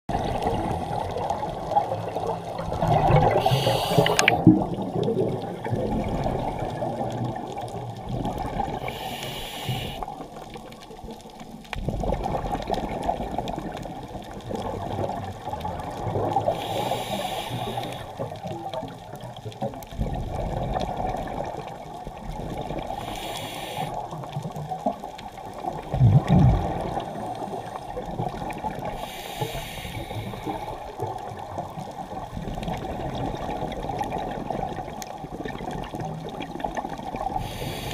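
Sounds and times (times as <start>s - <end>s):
muffled underwater rumble: 0.1s - 37.9s
bubbly regulator exhale: 2.6s - 7.4s, 25.8s - 31.0s, 37.0s - 37.9s.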